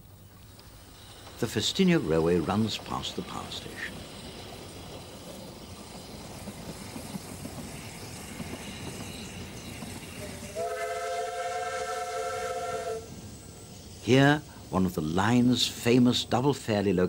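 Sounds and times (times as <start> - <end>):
steam locomotive working uphill: 0.0 - 17.0
steam whistle blast: 10.5 - 13.1.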